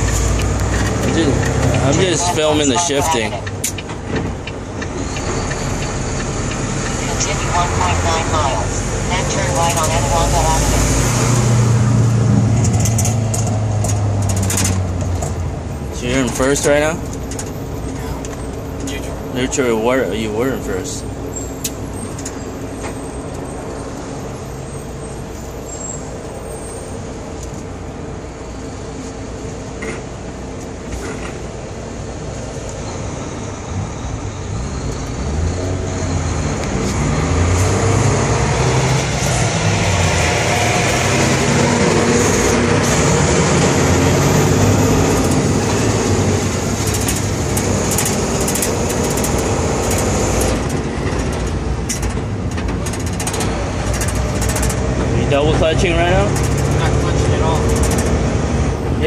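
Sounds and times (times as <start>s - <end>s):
truck diesel engine revving: 0.0s - 18.3s, 33.0s - 59.0s.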